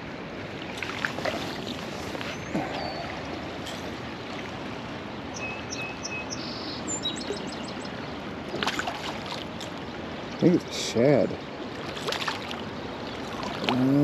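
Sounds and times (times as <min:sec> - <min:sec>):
river current rushing: 0:00.0 - 0:14.0
bird calling: 0:01.5 - 0:03.4, 0:05.3 - 0:08.0.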